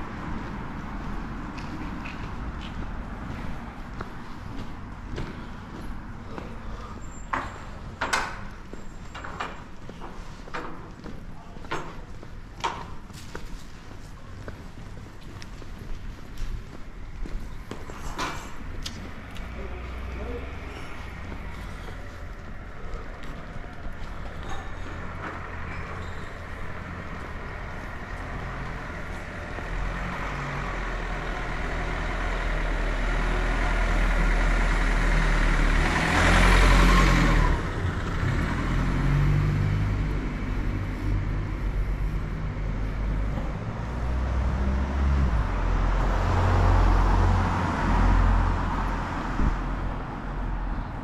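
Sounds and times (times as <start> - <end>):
low rumble of traffic: 0.0 - 51.0
car passing: 17.6 - 51.0.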